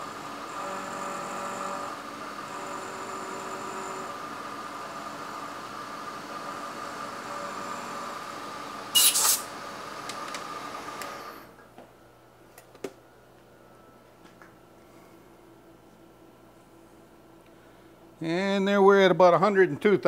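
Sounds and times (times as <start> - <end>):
milling machine spindle whine: 0.0 - 9.1
compressed air hiss: 9.0 - 9.5.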